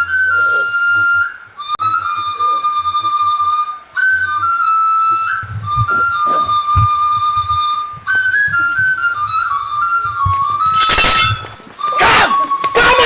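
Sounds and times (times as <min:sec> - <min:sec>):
flute-like melody: 0:00.0 - 0:13.0
low thuds: 0:05.4 - 0:11.9.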